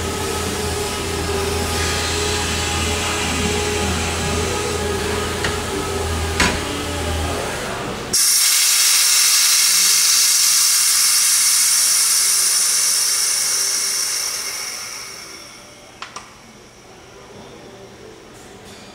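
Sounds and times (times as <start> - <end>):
compressed air hissing: 0.0 - 6.9, 8.1 - 15.8.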